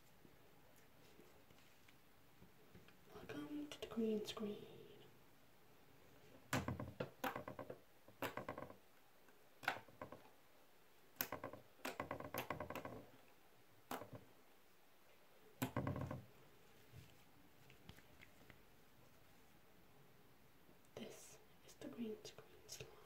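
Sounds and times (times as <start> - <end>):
small clicks and pops: 6.5 - 10.3, 11.2 - 13.0, 13.8 - 14.2.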